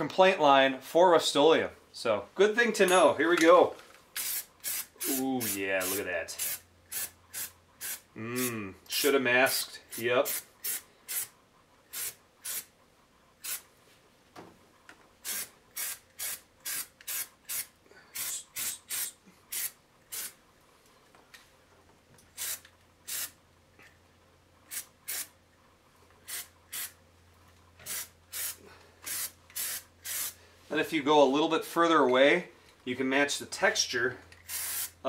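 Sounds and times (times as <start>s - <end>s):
aerosol spray can hissing: 4.2s - 8.1s, 9.9s - 11.3s, 11.9s - 12.7s, 13.4s - 13.6s, 15.2s - 20.4s, 22.4s - 23.4s, 24.7s - 25.3s, 26.3s - 27.0s, 27.8s - 30.4s, 34.5s - 35.0s.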